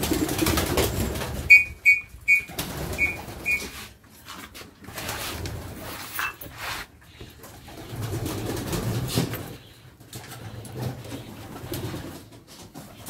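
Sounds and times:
pigeons cooing: 0:00.0 - 0:03.8.

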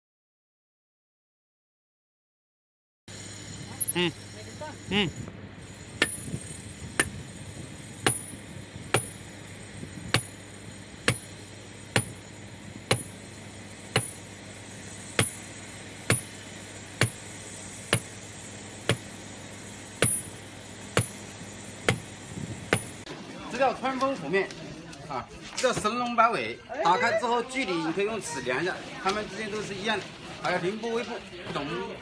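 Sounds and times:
sledgehammer striking stone: 0:06.0 - 0:06.3, 0:07.0 - 0:07.2, 0:08.0 - 0:09.2, 0:10.1 - 0:10.4, 0:11.1 - 0:11.3, 0:11.9 - 0:12.2, 0:12.9 - 0:13.1, 0:13.9 - 0:14.2, 0:15.2 - 0:15.4, 0:16.1 - 0:16.3, 0:17.0 - 0:17.2, 0:17.9 - 0:18.1, 0:18.9 - 0:19.1, 0:20.0 - 0:20.3, 0:21.0 - 0:21.2, 0:21.9 - 0:22.1, 0:22.7 - 0:23.0.

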